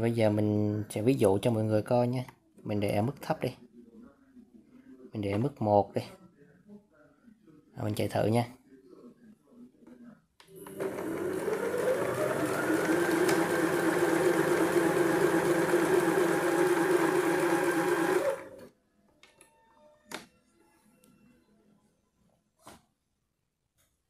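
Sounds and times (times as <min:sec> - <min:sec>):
electric sewing machine running: 0:10.6 - 0:18.7.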